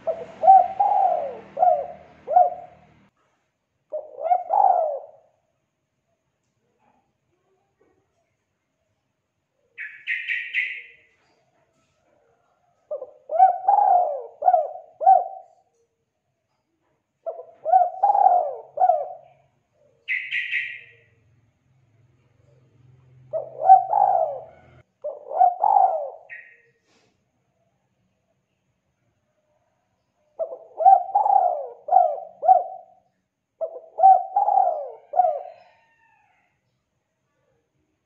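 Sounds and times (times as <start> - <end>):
dove cooing: 0.0 - 3.0, 3.9 - 5.4, 12.9 - 15.7, 17.2 - 20.9, 23.2 - 26.6, 30.4 - 36.3
high-pitched bird chirps: 9.8 - 11.1, 20.0 - 21.1, 25.7 - 26.8.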